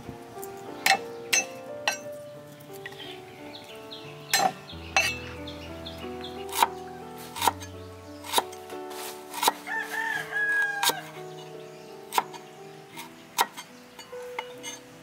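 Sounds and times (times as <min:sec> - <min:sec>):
rooster crowing: 0:09.6 - 0:11.2.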